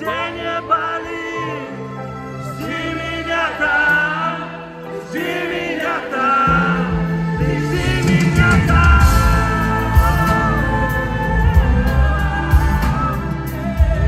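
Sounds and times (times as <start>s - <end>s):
backing band playing: 0.0s - 14.0s
man singing pop ballad: 6.1s - 14.0s.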